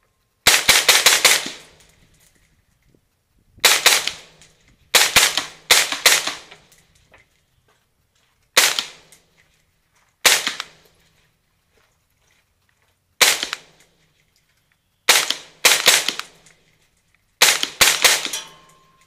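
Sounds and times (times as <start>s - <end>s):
suppressed rifle shots: 0.5s - 1.9s, 3.6s - 6.7s, 8.6s - 9.2s, 10.2s - 10.8s, 13.2s - 13.8s, 15.1s - 16.6s, 17.4s - 19.0s.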